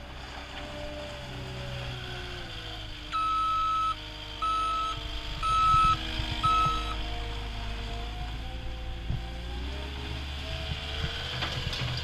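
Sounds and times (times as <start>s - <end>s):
diesel engine running: 0.0s - 12.0s
backup alarm beeping: 3.2s - 7.0s.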